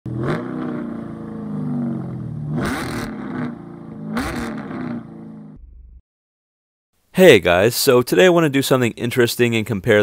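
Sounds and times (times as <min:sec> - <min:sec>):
car engine revving: 0:00.1 - 0:05.6.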